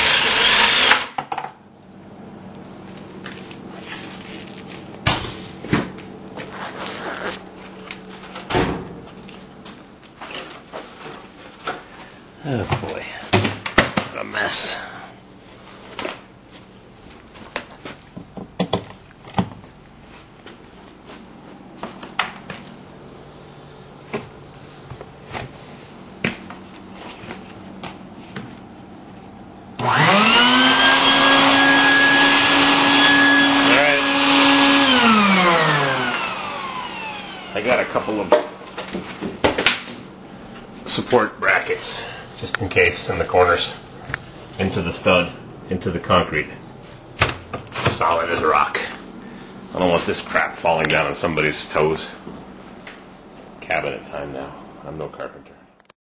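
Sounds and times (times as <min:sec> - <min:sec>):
power drill motor running: 0:00.0 - 0:01.2, 0:29.8 - 0:38.2
steady low hum: 0:01.6 - 0:30.0, 0:33.7 - 0:55.9.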